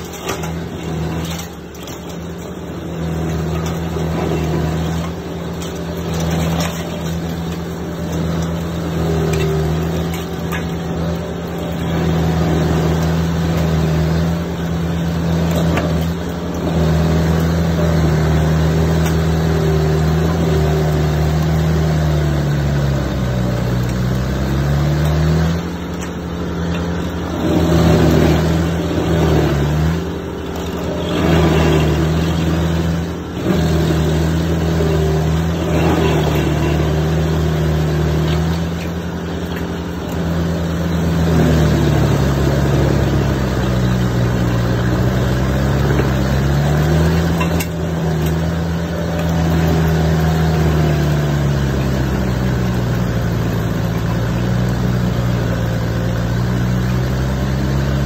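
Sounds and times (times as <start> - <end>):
stump grinder grinding: 0.0 - 58.0.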